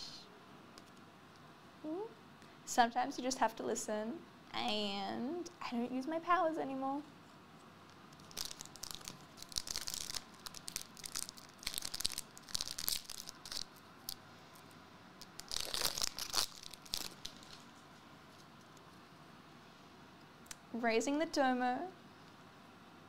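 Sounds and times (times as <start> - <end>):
foil wrapper crinkling and tearing: 8.1 - 14.2, 15.2 - 17.8.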